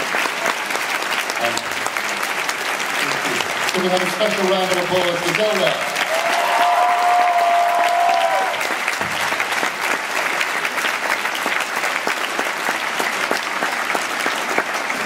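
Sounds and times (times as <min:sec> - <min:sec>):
audience applauding: 0:00.0 - 0:15.0
person whooping: 0:06.0 - 0:08.6.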